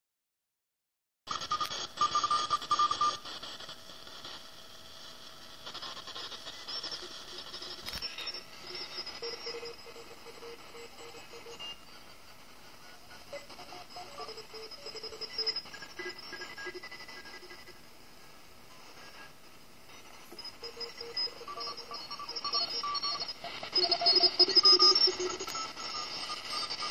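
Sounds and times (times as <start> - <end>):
radio static hiss: 1.3 - 26.9
thin drifting radio tones: 5.2 - 26.9.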